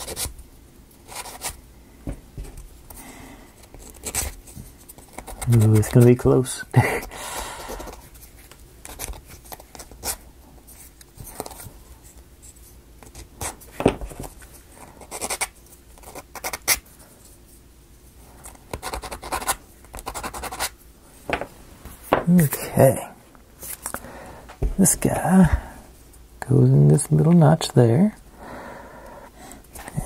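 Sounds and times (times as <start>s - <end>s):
wood scratching on wood: 3.6s - 7.1s.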